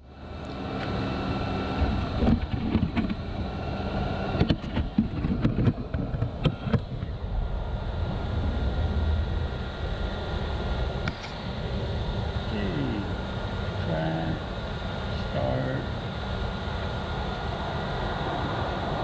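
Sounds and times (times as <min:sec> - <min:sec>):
wind rumbling on microphone: 0:01.7 - 0:15.1
sharp clicks and knocks: 0:01.8 - 0:03.2, 0:04.4 - 0:07.1.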